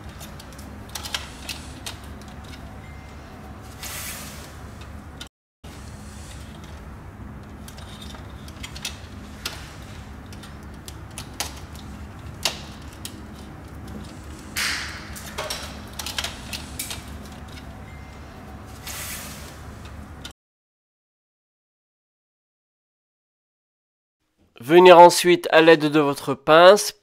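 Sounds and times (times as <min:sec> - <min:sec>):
steady low hum: 0:00.0 - 0:20.3.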